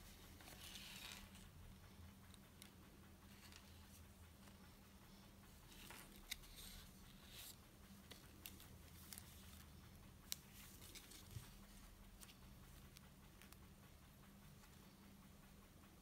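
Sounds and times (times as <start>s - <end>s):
gloves rustling on watch: 0.0s - 1.5s, 10.3s - 12.4s.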